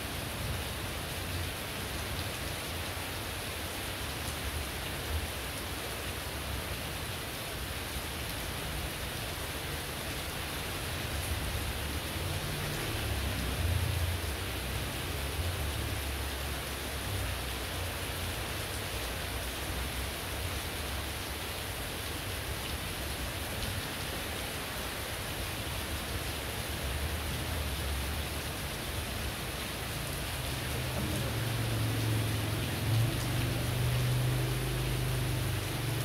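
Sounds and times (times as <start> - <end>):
heavy rain: 0.0 - 36.0.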